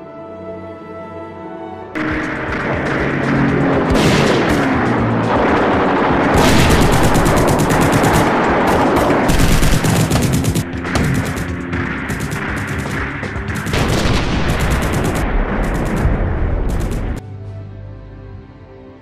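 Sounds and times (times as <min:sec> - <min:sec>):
background music: 0:00.0 - 0:19.0
machine-gun fire: 0:02.0 - 0:17.2.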